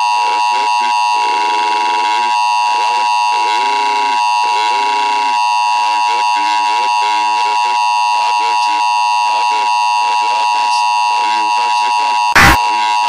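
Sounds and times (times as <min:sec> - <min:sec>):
steady two-tone alarm: 0:00.0 - 0:13.0
garbled distorted voice: 0:06.0 - 0:13.0.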